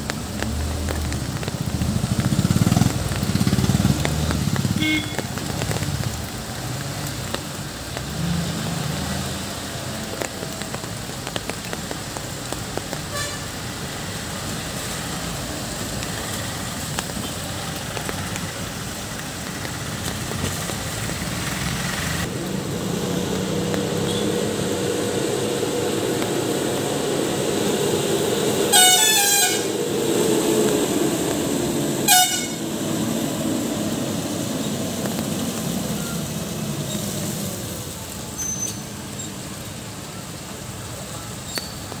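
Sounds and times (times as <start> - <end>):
car engines running: 0.0 - 13.0, 13.6 - 38.4
tyres hissing on wet road: 0.0 - 42.0
vehicle horn: 4.8 - 5.2, 13.1 - 13.4, 24.0 - 24.4, 28.7 - 29.8, 32.0 - 32.6.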